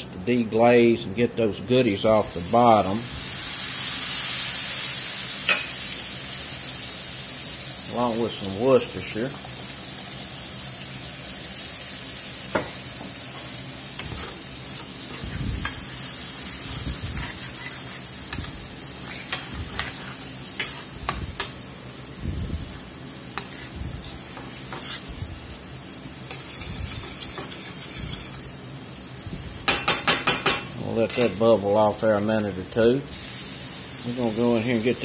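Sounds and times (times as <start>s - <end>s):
meat sizzling in a skillet: 2.2s - 31.4s, 33.1s - 35.0s
metal spoon scraping pan: 16.5s - 21.5s, 23.4s - 25.1s, 26.3s - 28.4s.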